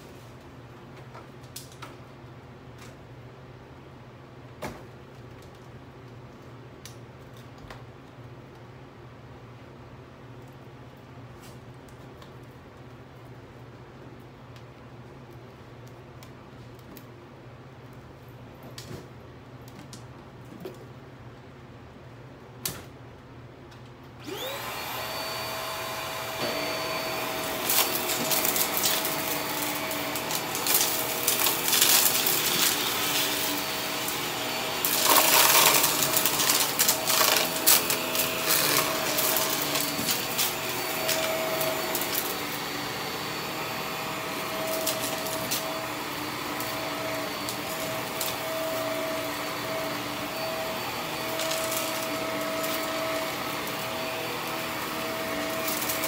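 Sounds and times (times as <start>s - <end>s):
vacuum motor whining: 24.2s - 56.0s.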